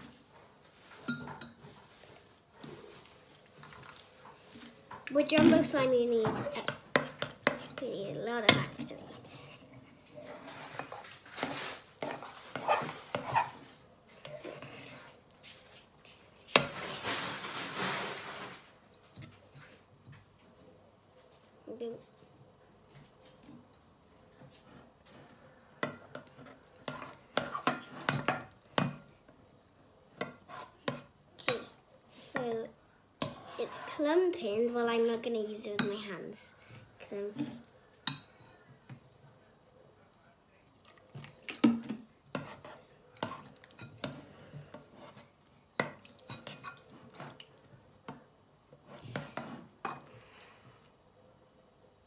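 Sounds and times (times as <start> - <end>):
spoon stirring slime in bowl: 0.7 - 9.6, 25.8 - 29.0, 37.4 - 38.6, 40.1 - 50.1
metal spoon stirring slime: 2.9 - 9.6, 10.3 - 18.0, 25.8 - 29.0, 30.2 - 36.1, 37.0 - 38.6, 42.3 - 47.7.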